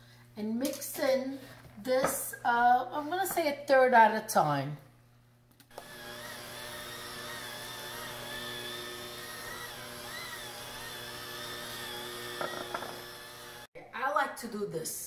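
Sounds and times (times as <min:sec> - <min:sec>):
electric hand mixer running: 0:05.7 - 0:13.7.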